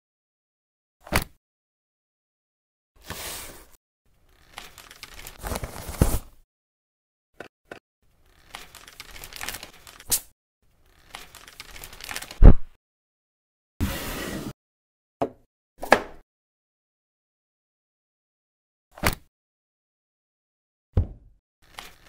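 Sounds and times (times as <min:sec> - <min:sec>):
cling film and paper crinkling: 0:04.3 - 0:06.3, 0:08.2 - 0:10.2, 0:10.9 - 0:12.4, 0:21.6 - 0:22.0.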